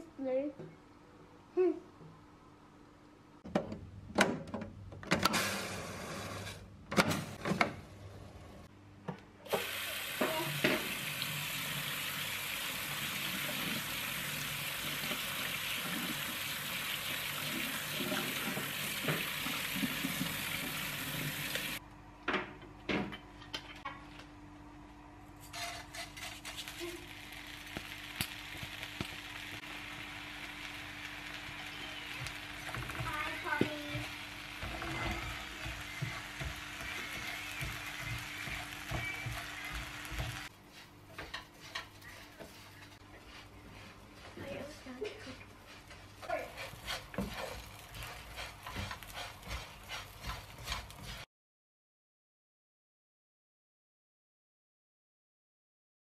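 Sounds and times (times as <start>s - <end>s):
tap water running onto rice: 9.5s - 21.8s.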